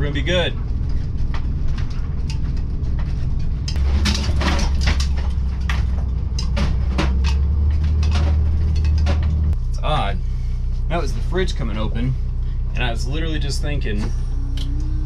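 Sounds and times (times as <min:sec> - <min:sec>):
knocks and rattles in cabin: 0:00.0 - 0:09.6
bus heavy low rumble: 0:00.0 - 0:15.0.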